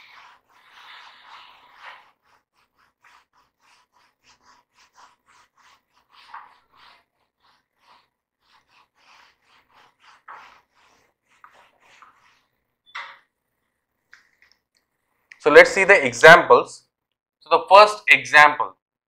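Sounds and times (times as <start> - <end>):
whiteboard duster rubbing: 0.0 - 12.7.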